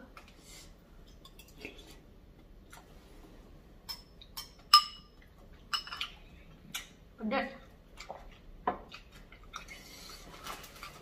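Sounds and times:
spoon clinking against bowl: 3.9s - 6.1s.

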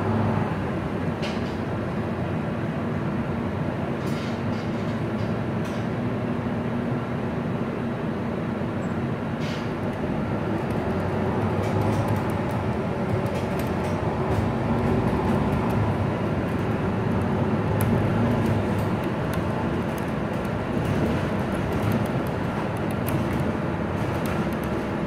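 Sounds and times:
bus engine and tyres droning: 0.0s - 25.0s
cabin rattles and clicks: 10.6s - 25.0s.

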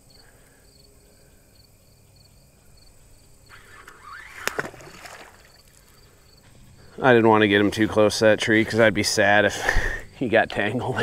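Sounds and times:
fishing reel casting rush: 3.4s - 7.8s.

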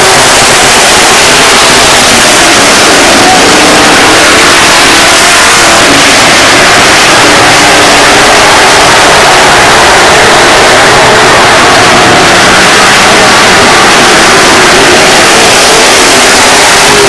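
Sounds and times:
race car engines droning: 0.0s - 17.0s.

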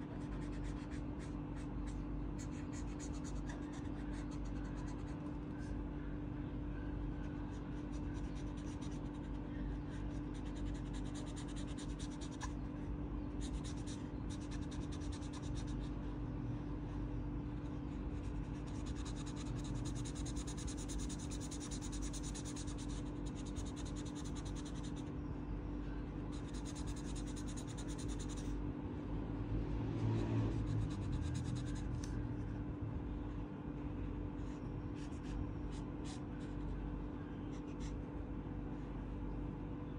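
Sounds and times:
marker scratching on paper: 0.0s - 5.2s, 7.5s - 12.6s, 13.4s - 15.9s, 18.1s - 25.1s, 26.3s - 28.5s, 30.5s - 32.1s
low hum: 0.0s - 39.9s.

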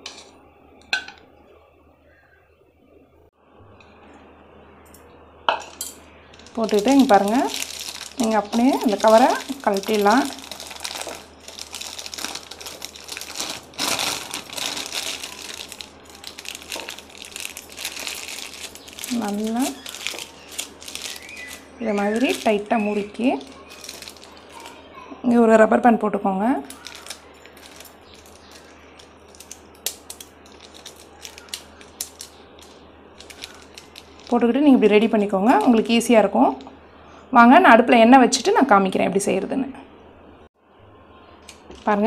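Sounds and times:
plastic bag crinkling: 6.3s - 24.9s, 26.6s - 36.7s.

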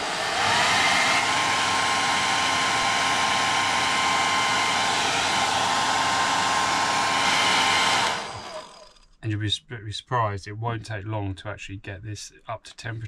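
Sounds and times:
hairdryer blowing with whine: 0.0s - 9.0s.

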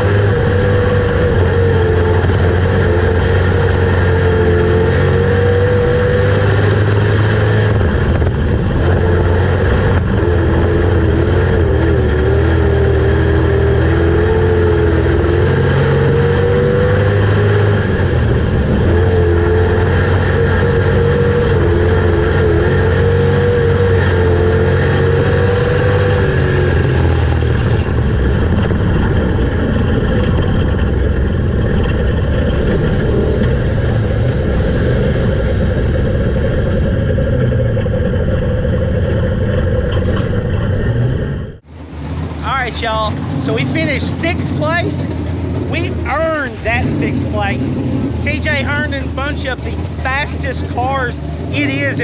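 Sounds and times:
race car engine at speed: 0.0s - 52.0s.

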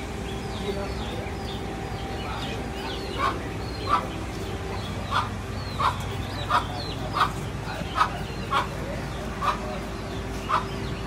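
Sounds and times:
birds chirping: 0.0s - 11.0s
steady hum: 0.0s - 11.0s
loud short bird calls: 2.9s - 11.0s.

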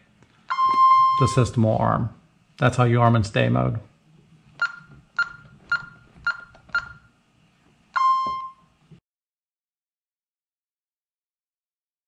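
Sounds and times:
longer keypad beep: 0.5s - 1.4s, 4.6s - 7.1s, 8.0s - 8.7s
short keypad beeps: 0.5s - 1.4s, 4.6s - 7.1s, 8.0s - 8.7s.

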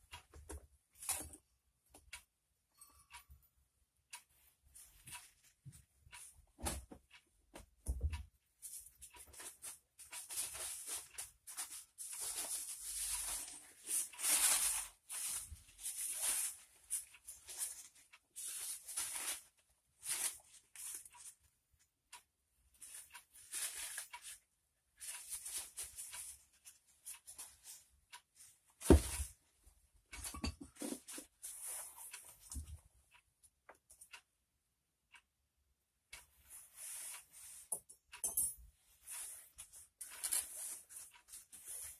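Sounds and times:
hands rustling and scraping parts: 8.6s - 21.5s, 22.7s - 29.5s, 30.1s - 32.8s, 36.1s - 41.9s.

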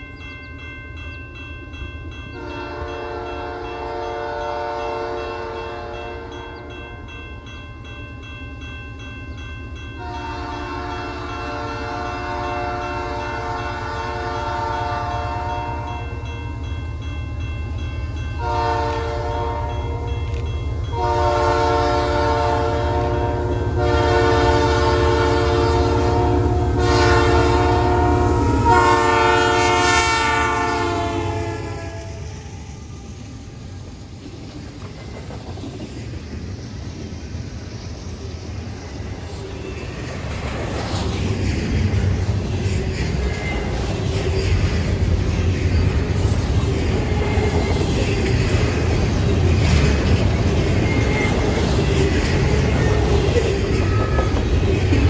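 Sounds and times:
train cars rumbling and clattering: 0.0s - 55.0s
locomotive air horn: 2.4s - 6.4s, 10.0s - 15.9s, 18.4s - 20.1s, 20.9s - 32.7s.

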